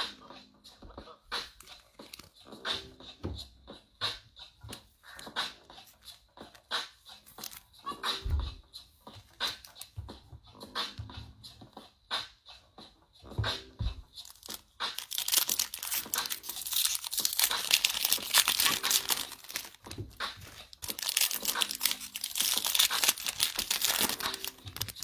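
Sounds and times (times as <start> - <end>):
foil wrapper crinkling: 1.6 - 2.3, 7.3 - 7.6, 14.2 - 25.0.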